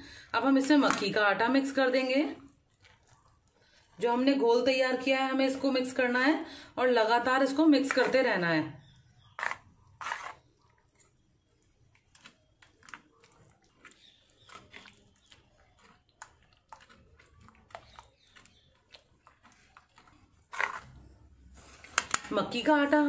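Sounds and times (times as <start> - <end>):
wet squishing and scraping: 0.7 - 4.1, 9.2 - 22.4
ladle stirring thick greens: 9.4 - 22.2.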